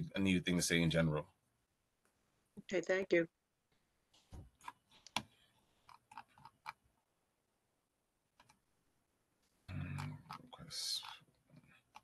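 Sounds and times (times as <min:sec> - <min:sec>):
faint clicks and taps: 0:03.7 - 0:06.8, 0:09.4 - 0:12.0.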